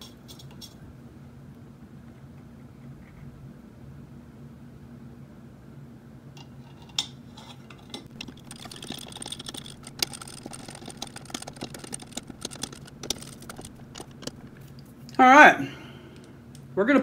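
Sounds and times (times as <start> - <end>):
screwdriver clicking and scraping metal: 7.4 - 14.7.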